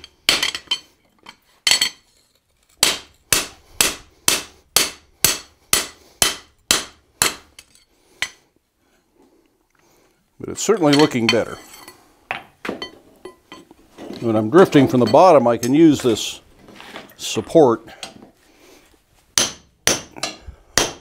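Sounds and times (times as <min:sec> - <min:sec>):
hammer striking metal on anvil: 0:00.0 - 0:00.8, 0:02.8 - 0:08.4, 0:19.4 - 0:21.0.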